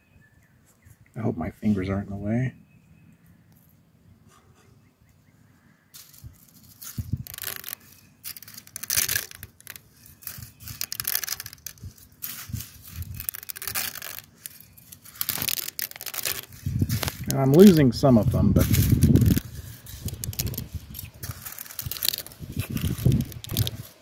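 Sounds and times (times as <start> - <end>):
dry spaghetti rattling: 6.0 - 24.0.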